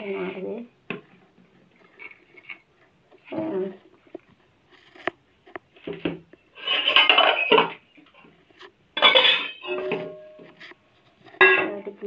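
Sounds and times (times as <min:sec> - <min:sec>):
utensils clattering and scraping: 0:05.8 - 0:11.9
kitchen utensils knocking: 0:06.6 - 0:07.8, 0:09.0 - 0:10.5, 0:11.4 - 0:11.8.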